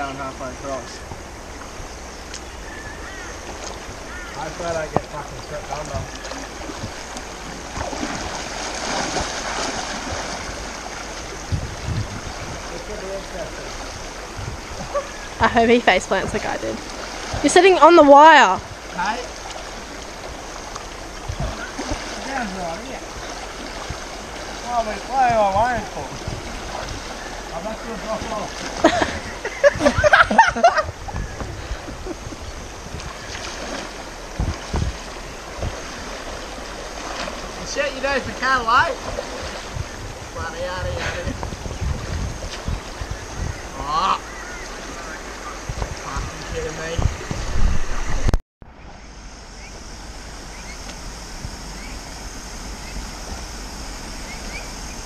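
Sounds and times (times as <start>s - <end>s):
wind buffeting microphone: 0.0s - 48.4s
creek running: 0.0s - 55.0s
water splashing around legs: 3.4s - 40.2s.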